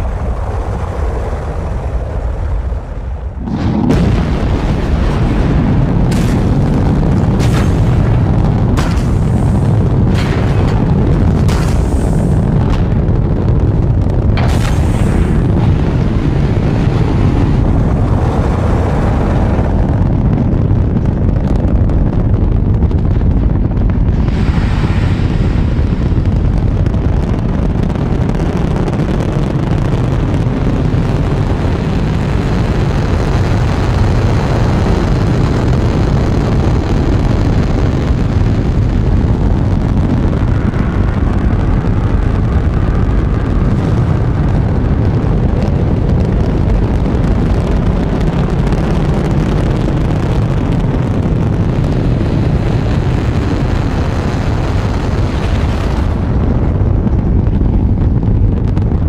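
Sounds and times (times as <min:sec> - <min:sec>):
rocket engines roaring: 0:00.0 - 0:59.0.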